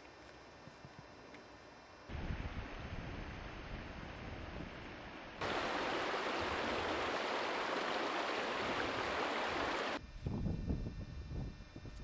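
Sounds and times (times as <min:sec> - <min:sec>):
wind rumble on microphone: 0:02.1 - 0:05.7, 0:08.6 - 0:12.0
stream rushing over stones: 0:05.4 - 0:10.0.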